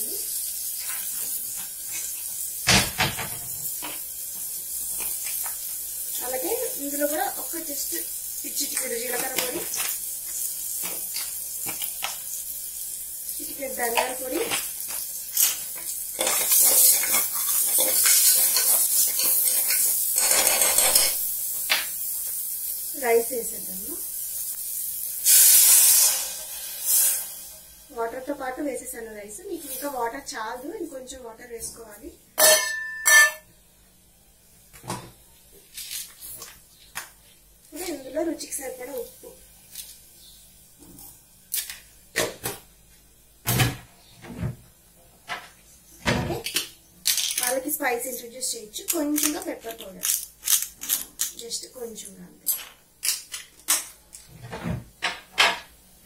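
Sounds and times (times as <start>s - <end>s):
food sizzling in hot oil: 0.0s - 33.5s, 35.2s - 43.4s, 46.8s - 52.3s
spoon and containers knocking: 32.4s - 33.4s.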